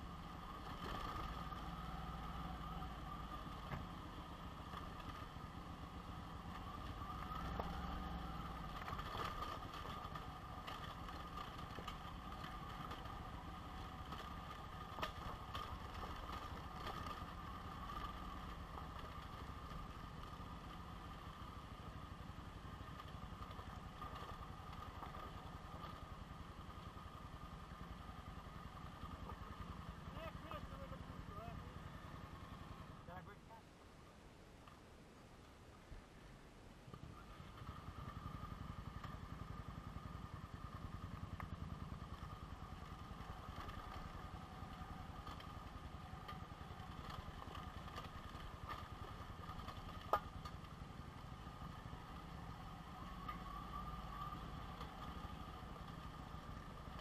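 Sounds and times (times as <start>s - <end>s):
motorcycle engine running: 0.0s - 33.2s, 36.9s - 57.0s.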